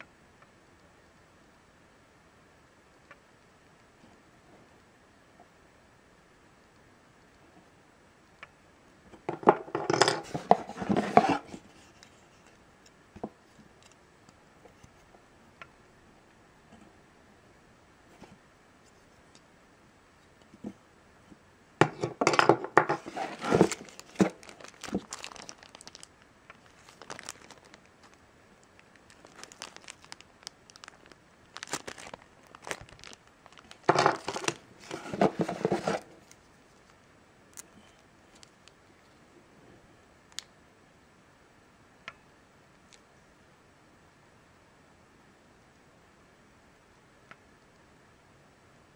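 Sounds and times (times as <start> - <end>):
plastic packaging crinkling: 22.8 - 37.0.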